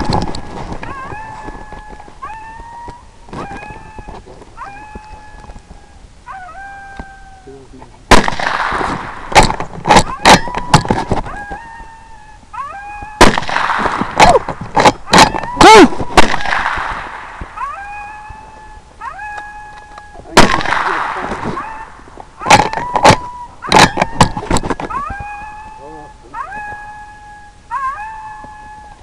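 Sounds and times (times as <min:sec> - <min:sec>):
electronic animal call wailing: 0:00.0 - 0:07.6, 0:10.0 - 0:13.2, 0:17.6 - 0:20.4, 0:21.6 - 0:29.0
sharp cracks: 0:08.1 - 0:11.6, 0:13.0 - 0:18.2, 0:19.2 - 0:25.3.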